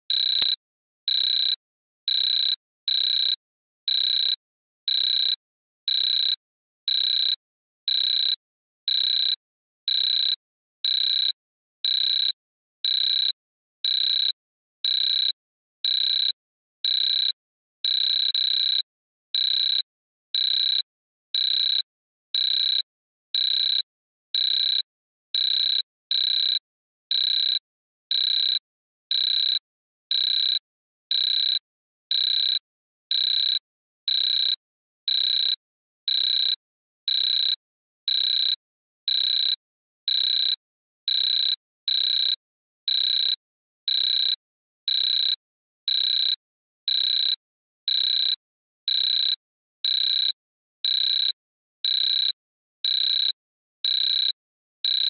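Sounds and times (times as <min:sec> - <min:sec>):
alarm clock beeping: 0:00.1 - 0:00.6, 0:10.9 - 0:18.8, 0:52.8 - 0:55.0.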